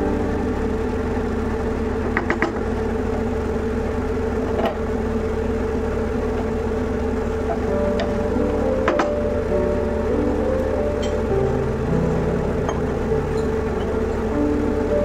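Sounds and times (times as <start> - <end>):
steady machine hum: 0.0 - 15.0.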